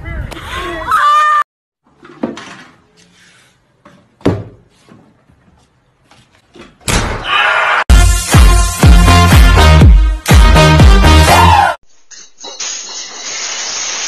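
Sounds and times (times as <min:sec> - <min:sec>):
bass-heavy music: 0:07.9 - 0:11.8.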